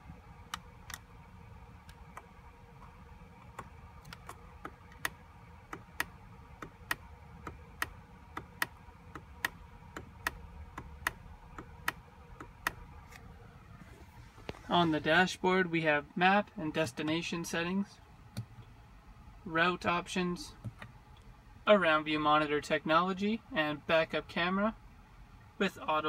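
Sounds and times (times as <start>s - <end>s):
steering wheel switch clicks: 1.8s - 13.3s.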